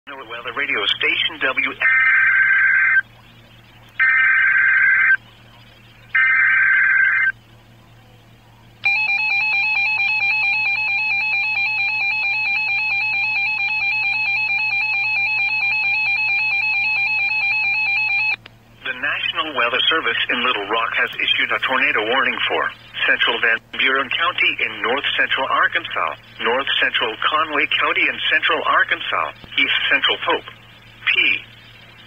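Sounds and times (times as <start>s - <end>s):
buzzing digital data bursts: 4.0s - 5.2s, 6.1s - 7.4s
two-tone alert signal: 8.8s - 18.4s.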